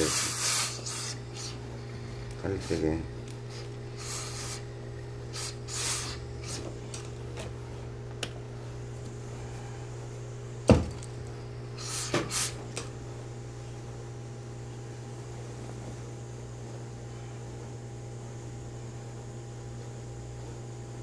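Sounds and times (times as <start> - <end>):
short rustling hisses: 0.0 - 1.6, 3.5 - 4.6, 5.3 - 6.7
steady low hum: 0.0 - 21.0.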